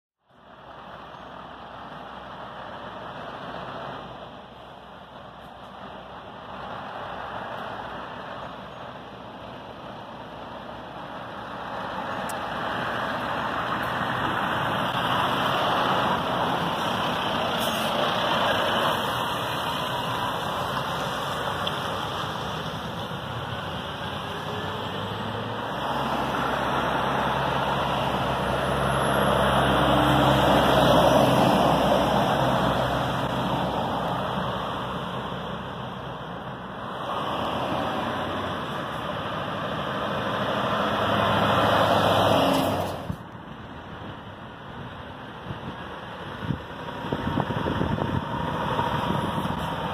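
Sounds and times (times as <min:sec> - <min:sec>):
lorries driving past: 0:00.2 - 0:49.9.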